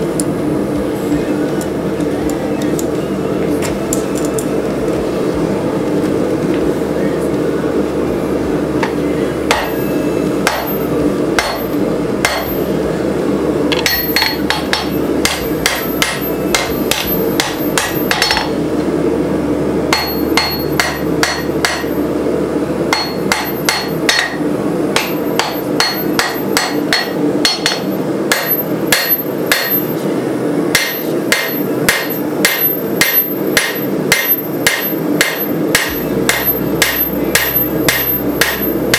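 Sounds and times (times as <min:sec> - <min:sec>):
steady low hum: 0:00.0 - 0:38.9
hammer striking metal on anvil: 0:08.8 - 0:12.7, 0:13.7 - 0:18.6, 0:19.9 - 0:22.0, 0:22.9 - 0:30.0, 0:30.7 - 0:38.9.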